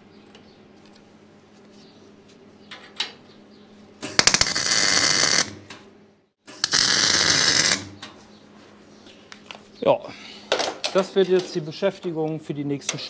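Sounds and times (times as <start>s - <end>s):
welder arc crackling hiss: 6.6s - 7.9s.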